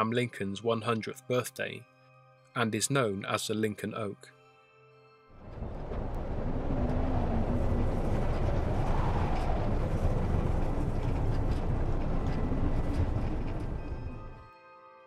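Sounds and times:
faint wind howl: 0:05.3 - 0:14.5
deep rumble: 0:05.4 - 0:14.4
storm wind gusting: 0:05.4 - 0:14.4.

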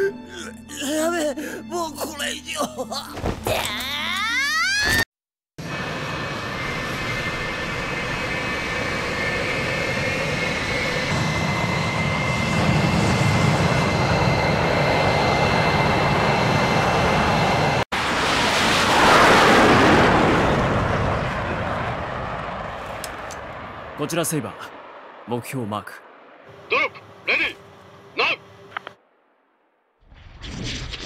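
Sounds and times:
fighter jets flying past: 0:05.6 - 0:29.0.

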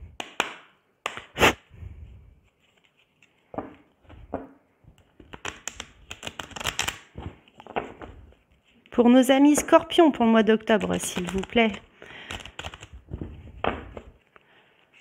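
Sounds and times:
cards snapping: 0:00.2 - 0:01.6, 0:05.0 - 0:08.1, 0:10.7 - 0:14.1
cards shuffling flurry: 0:05.0 - 0:08.4, 0:10.6 - 0:14.2.

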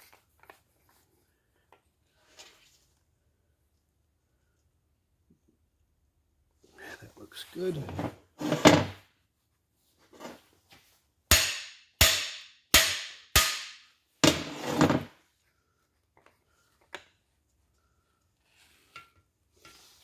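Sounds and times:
hammer striking metal bar: 0:11.3 - 0:13.9.

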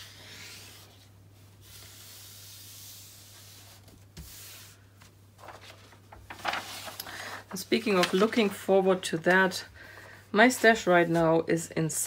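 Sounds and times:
plastic film rustling: 0:05.4 - 0:09.6.

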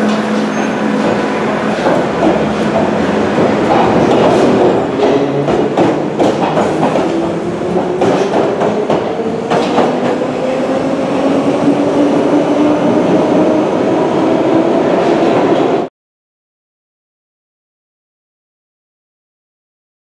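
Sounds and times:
wheel clacks over rail joints: 0:00.0 - 0:10.2
train rolling rumble: 0:00.0 - 0:15.9.

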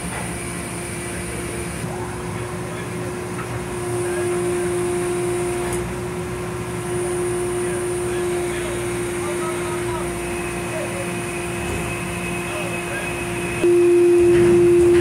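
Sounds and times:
constant mid-pitched whine: 0:00.0 - 0:15.0
low engine drone: 0:00.0 - 0:15.0.

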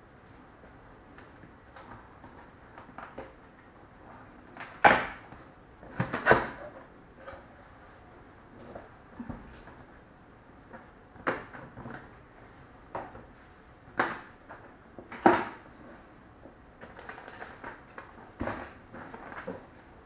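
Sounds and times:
plastic wrap rustling: 0:16.8 - 0:19.8.

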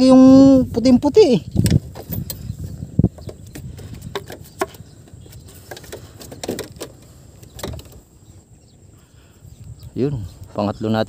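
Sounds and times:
light clicks and knocks: 0:03.1 - 0:08.1.

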